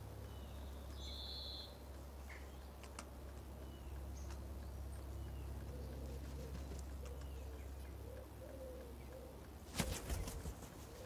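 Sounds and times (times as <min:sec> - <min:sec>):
faint bird chirps: 0:00.2 - 0:02.7
pigeon cooing: 0:05.7 - 0:11.0.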